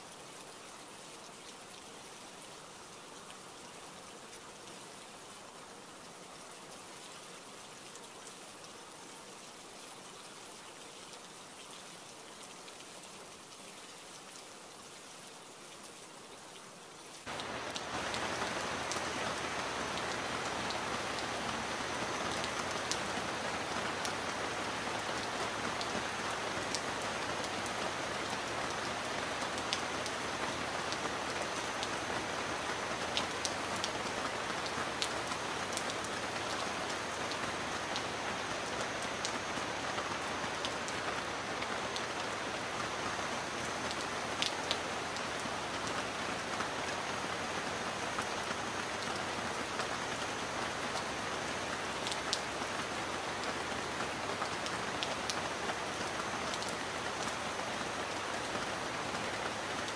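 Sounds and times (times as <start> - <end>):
steady rain: 0.0 - 59.9.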